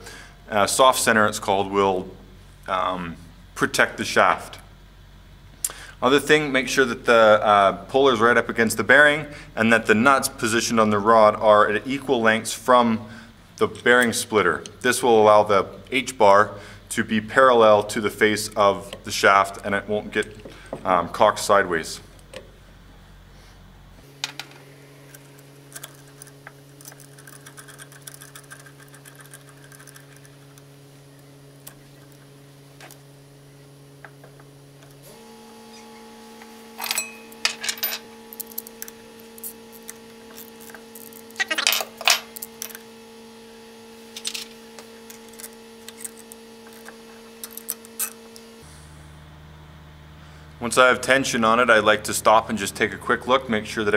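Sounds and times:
steady hum: 0.0s - 53.9s
rapid ratchet clicking: 25.2s - 30.7s.

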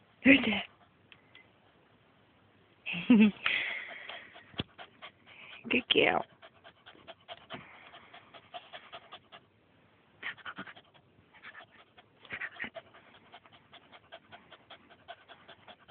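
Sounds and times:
dog panting: 0.3s - 1.0s, 3.5s - 9.6s, 10.2s - 15.9s.

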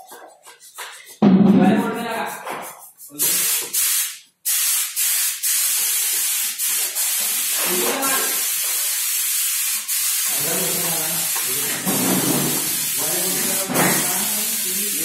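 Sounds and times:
spray gun hissing: 3.1s - 15.0s.

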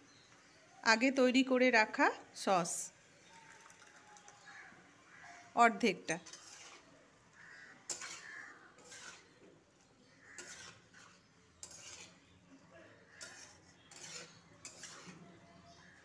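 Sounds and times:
utensil scraping metal pan: 6.2s - 9.4s, 10.2s - 12.4s, 13.1s - 16.0s.

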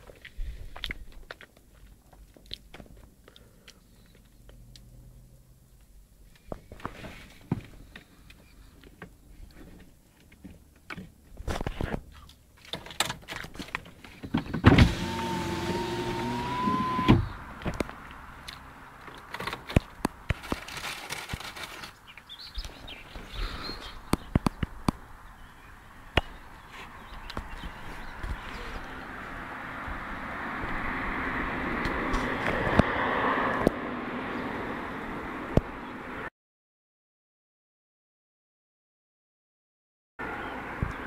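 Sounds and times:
electric window motor whining: 14.7s - 17.4s.

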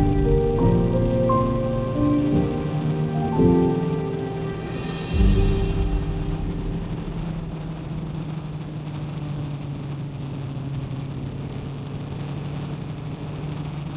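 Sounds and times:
noisy rush: 0.0s - 13.9s.

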